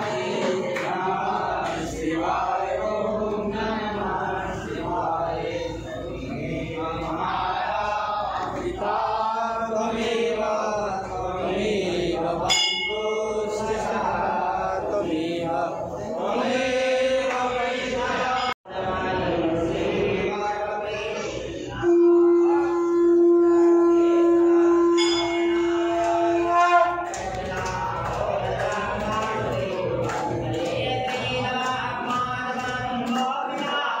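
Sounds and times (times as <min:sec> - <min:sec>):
voices chanting: 0:00.0 - 0:34.0.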